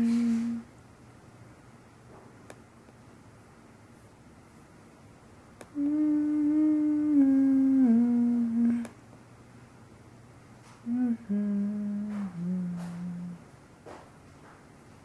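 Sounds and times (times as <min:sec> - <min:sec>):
person humming: 0:00.0 - 0:00.7, 0:05.6 - 0:09.0, 0:10.8 - 0:13.5.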